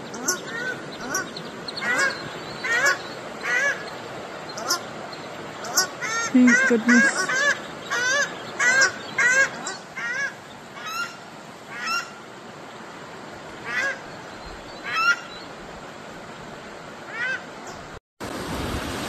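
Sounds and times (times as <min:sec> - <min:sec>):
waterfowl calling: 0:00.0 - 0:12.3, 0:13.6 - 0:15.4, 0:17.1 - 0:17.8
creek water rushing: 0:00.0 - 0:19.0.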